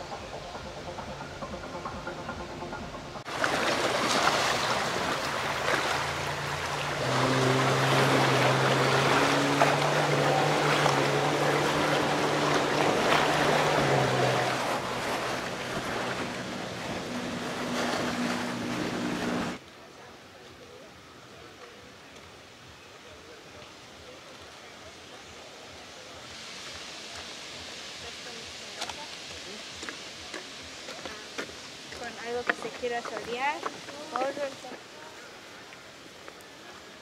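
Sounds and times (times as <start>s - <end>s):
jet ski engine: 0.0s - 19.6s
wind: 0.0s - 37.0s
lake water washing against shore: 3.2s - 19.6s, 23.4s - 37.0s.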